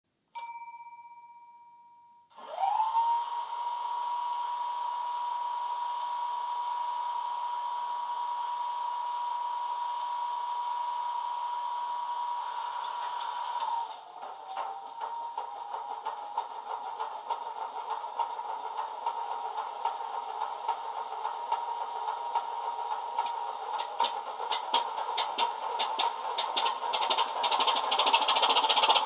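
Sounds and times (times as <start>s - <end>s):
short ringing tone: 0.4s - 2.3s
diesel engine with high whine: 2.7s - 29.0s.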